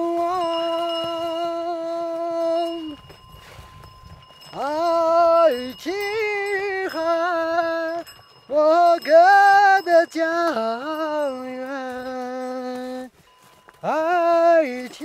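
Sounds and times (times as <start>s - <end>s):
person singing long held notes: 0.0s - 3.1s.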